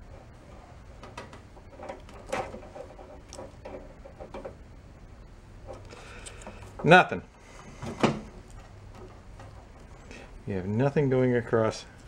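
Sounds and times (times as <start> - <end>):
test probes handling: 5.6 - 10.1.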